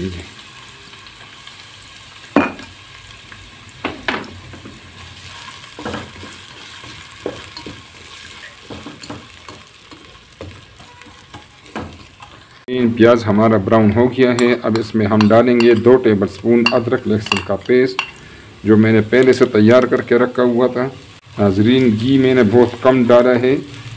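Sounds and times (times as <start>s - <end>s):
onion sizzling in pot: 0.0s - 23.9s
spoon knocking on pot: 14.3s - 16.0s, 16.6s - 18.2s.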